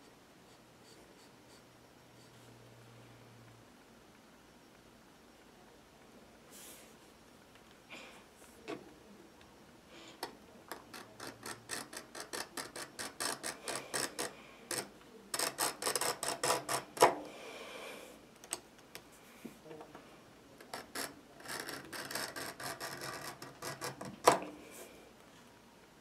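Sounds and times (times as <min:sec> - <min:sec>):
knife scoring leather: 0:10.9 - 0:17.2, 0:20.7 - 0:24.4.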